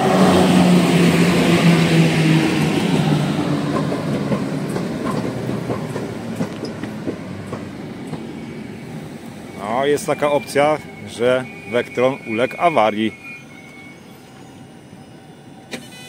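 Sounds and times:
electric train hum: 0.0 - 16.0
wheels clicking over rail joints: 3.4 - 8.4.

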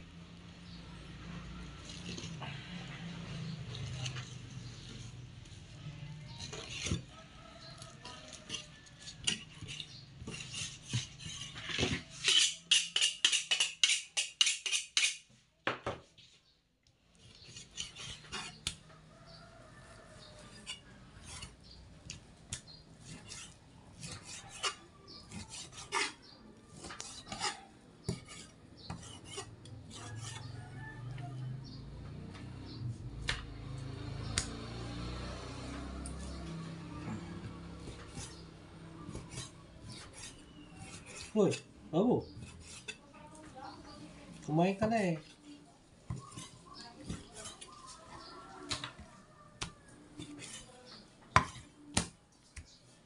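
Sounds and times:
knife scraping on cutting board: 6.3 - 15.2, 17.2 - 18.8, 20.0 - 21.8, 22.6 - 30.6, 37.5 - 43.0, 46.1 - 48.1, 50.2 - 51.8.

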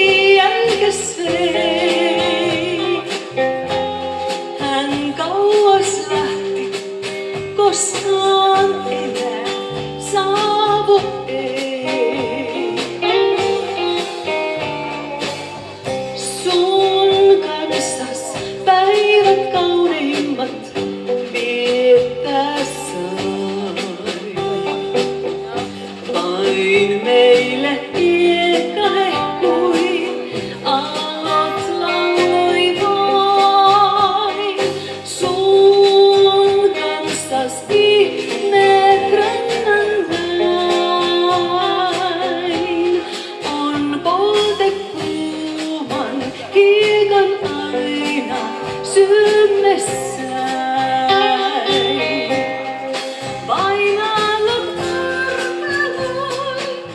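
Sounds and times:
lead electric guitar melody: 0.0 - 26.1, 46.0 - 56.9
bass guitar: 0.0 - 56.9
drums: 0.0 - 56.9.

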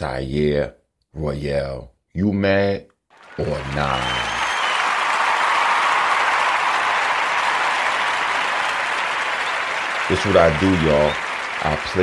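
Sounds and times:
many hands clapping: 3.1 - 12.0.

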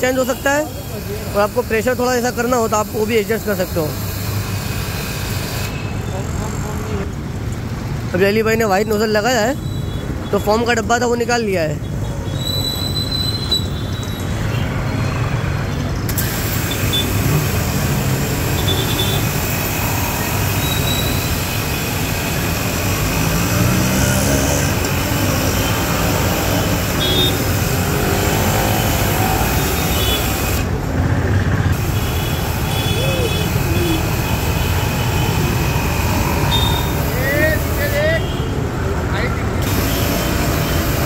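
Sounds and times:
street traffic: 0.0 - 41.0
pressure washer spraying water: 0.3 - 5.8, 16.1 - 30.8, 31.7 - 38.4, 39.6 - 41.0.

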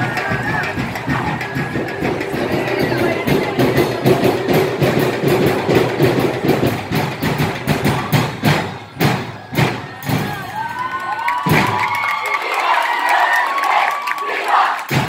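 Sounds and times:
drums beating fast rhythm: 0.0 - 12.0.

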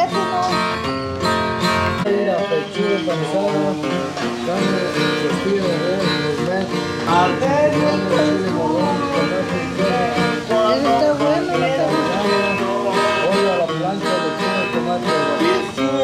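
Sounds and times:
acoustic guitar chords: 0.0 - 16.0.

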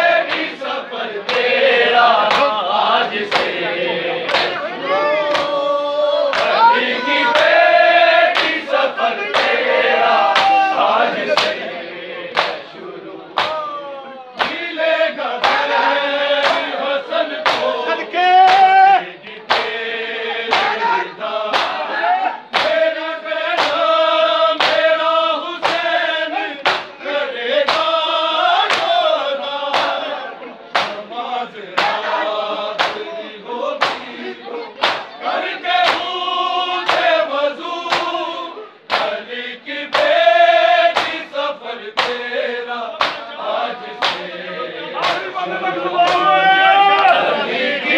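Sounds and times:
men chanting in chorus: 0.0 - 47.9.

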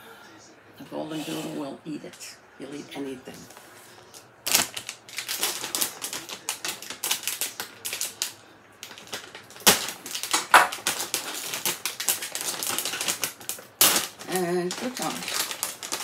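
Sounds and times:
plastic bag crackling: 3.5 - 16.0
croutons rattling in bag: 4.5 - 16.0.

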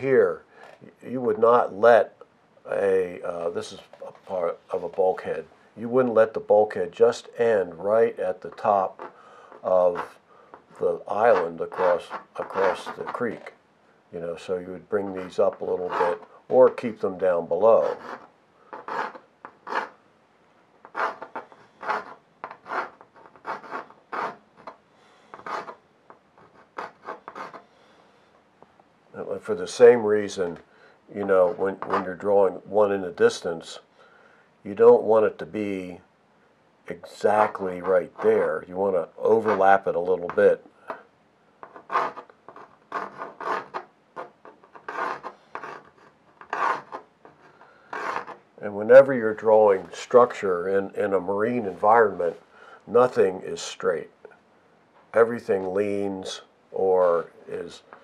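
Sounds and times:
pencil scratching on paper: 8.6 - 13.5, 15.0 - 20.0, 20.8 - 25.8, 26.4 - 27.7, 31.2 - 32.2, 37.4 - 38.5, 39.4 - 39.7, 41.6 - 48.4.

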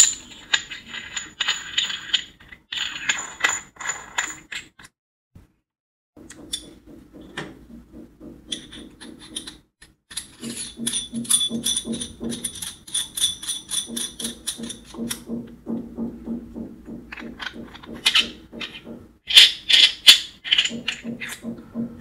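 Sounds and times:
metal threaded parts clicking: 6.2 - 6.8, 8.5 - 15.3.

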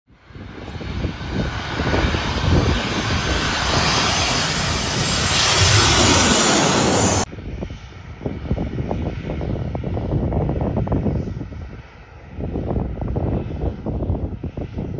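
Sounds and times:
jet plane roaring overhead: 0.2 - 14.9
low rumble: 0.4 - 7.8.

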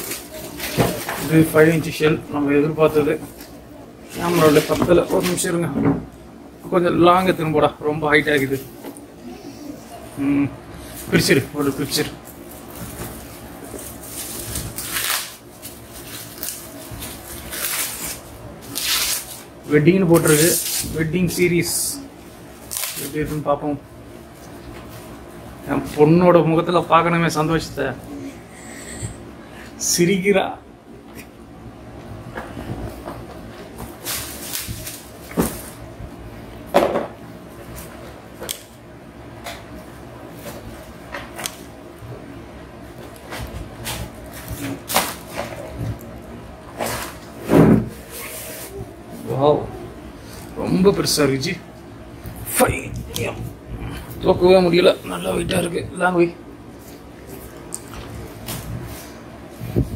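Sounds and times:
plastic packaging rustling: 0.0 - 2.0, 2.8 - 5.6, 10.9 - 23.5.

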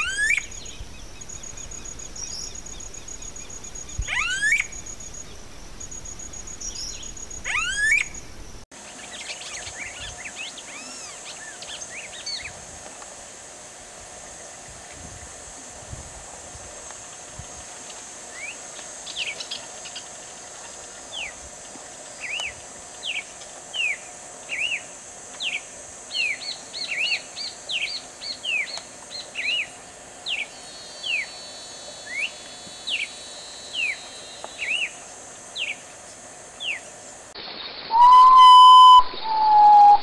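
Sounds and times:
loud held bird whistle: 0.0 - 0.6, 4.0 - 4.8, 6.8 - 8.2, 37.9 - 40.0
bird singing whistled slurs: 0.0 - 8.4, 30.3 - 35.0, 37.9 - 40.0
steady hiss: 0.0 - 40.0.

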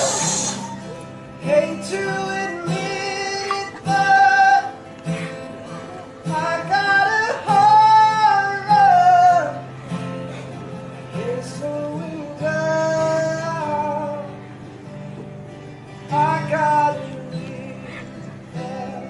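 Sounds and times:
strummed acoustic guitar: 0.0 - 19.0
man singing slow melody: 1.4 - 5.2, 6.2 - 9.9, 11.0 - 14.6, 16.0 - 19.0.

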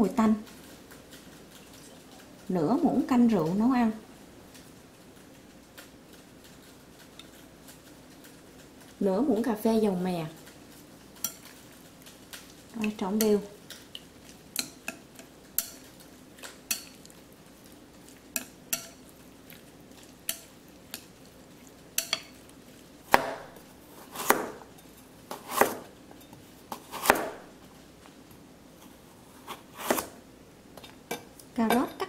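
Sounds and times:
chopsticks scraping ceramic bowl: 11.2 - 11.6
knife chopping on cutting board: 23.1 - 24.7, 25.3 - 25.9, 26.7 - 27.4, 29.4 - 30.2.

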